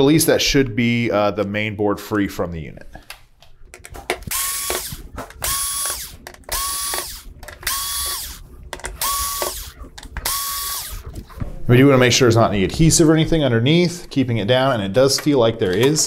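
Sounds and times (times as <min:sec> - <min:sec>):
cordless drill motor whine: 0:04.3 - 0:08.4, 0:09.0 - 0:11.0.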